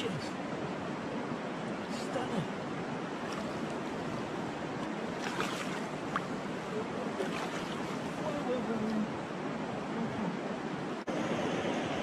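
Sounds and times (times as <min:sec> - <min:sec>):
river current rushing: 0:00.0 - 0:12.0
small water splashes: 0:03.0 - 0:09.1.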